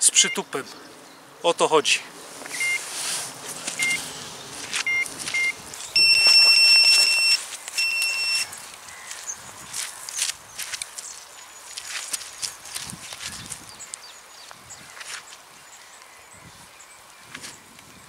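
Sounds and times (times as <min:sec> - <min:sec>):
electronic bite alarm beeping: 0:00.1 - 0:00.5, 0:02.6 - 0:02.8, 0:03.8 - 0:04.0, 0:04.8 - 0:08.6.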